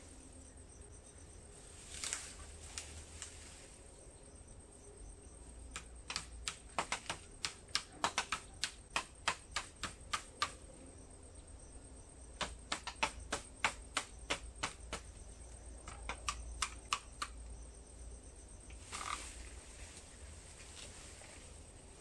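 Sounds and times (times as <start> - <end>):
blade hacking bamboo: 5.8 - 10.6, 12.4 - 15.1.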